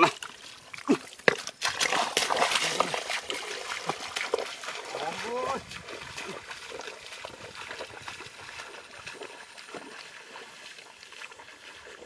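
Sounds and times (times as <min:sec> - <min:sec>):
footsteps splashing through mud: 0:00.0 - 0:12.0.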